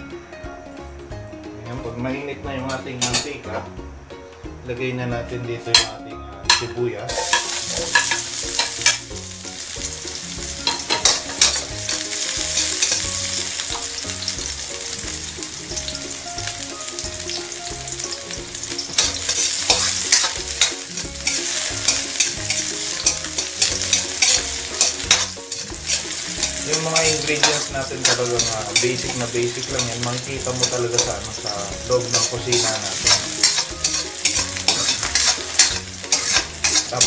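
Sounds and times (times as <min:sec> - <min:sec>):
onions sizzling in oil: 0:06.5 - 0:37.0
spatula stirring in a pan: 0:07.1 - 0:16.3, 0:16.9 - 0:37.0.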